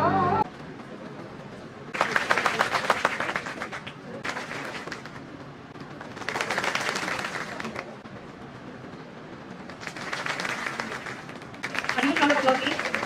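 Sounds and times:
audience clapping: 1.9s - 8.0s, 9.6s - 13.0s.

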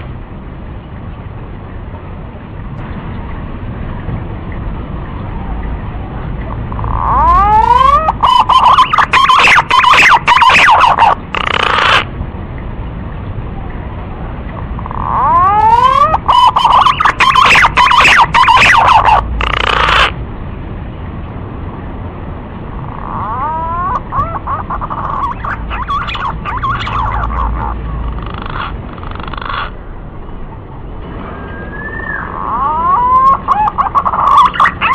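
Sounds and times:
pigeon whistling and warbling: 6.7s - 12.0s, 14.8s - 20.1s, 22.9s - 28.7s, 31.2s - 34.9s.

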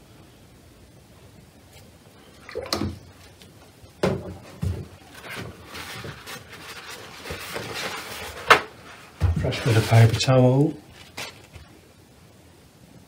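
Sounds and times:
soft rustling: 4.4s - 11.9s.

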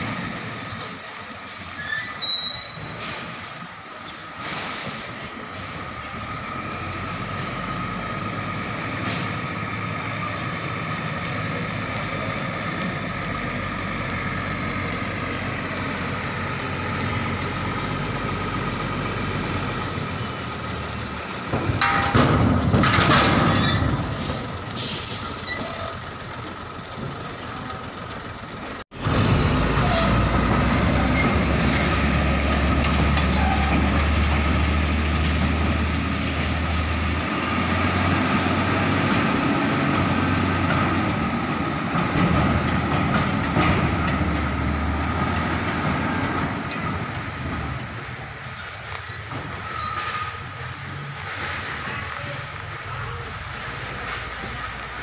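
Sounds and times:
diesel truck engine running: 3.2s - 49.5s
metal clanks: 21.5s - 25.8s.

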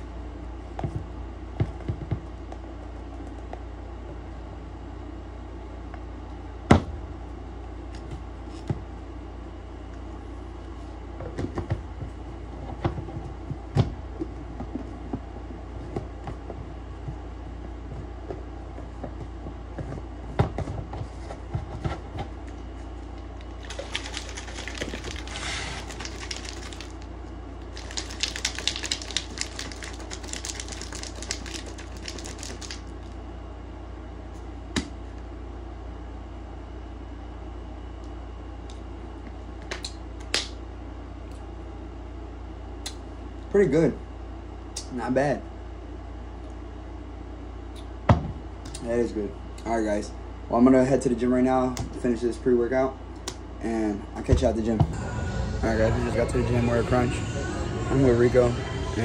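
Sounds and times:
shaker bottle rattling: 23.5s - 33.1s.

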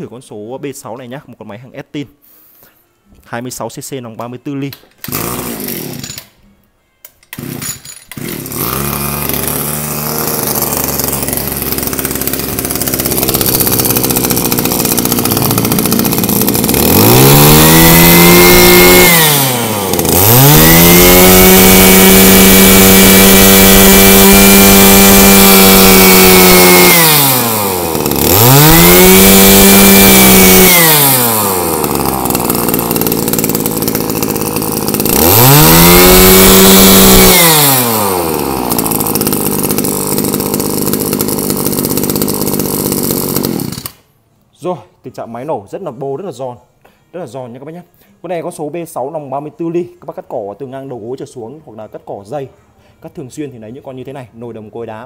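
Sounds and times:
brush cutter engine revving: 5.0s - 6.2s, 7.3s - 44.1s.

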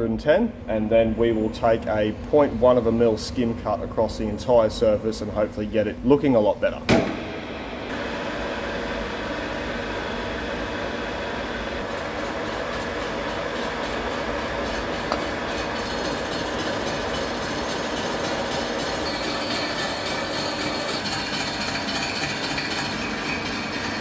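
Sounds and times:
milling machine whirring: 7.0s - 24.0s.

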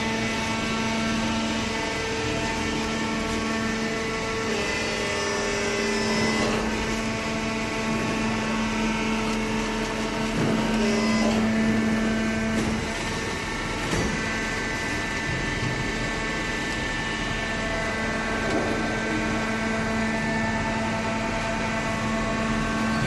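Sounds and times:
baler mechanical hum: 0.0s - 23.0s.

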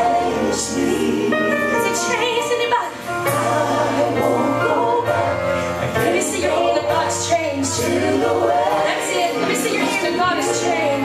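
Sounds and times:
group singing gospel song: 0.0s - 11.0s.

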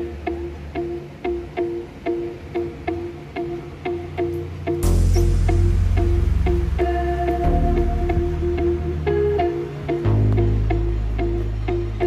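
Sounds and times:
repeating short music notes: 4.4s - 12.0s
deep bass: 4.8s - 11.9s.

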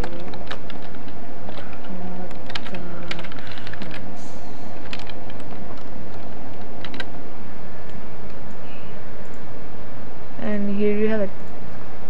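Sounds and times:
typing on computer keyboard: 0.0s - 4.0s, 4.8s - 7.2s.

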